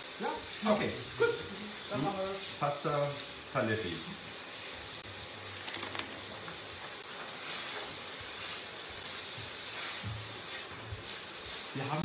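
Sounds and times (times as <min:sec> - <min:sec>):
meat sizzling in oil: 0:00.0 - 0:12.0.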